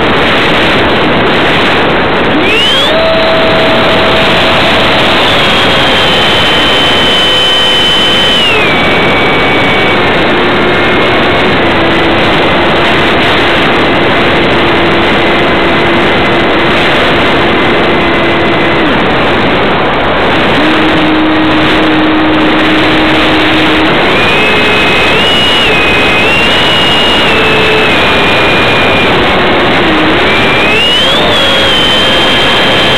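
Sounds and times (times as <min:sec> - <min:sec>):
loud rushing air: 0:00.0 - 0:32.9
electric motor whine: 0:20.6 - 0:32.9.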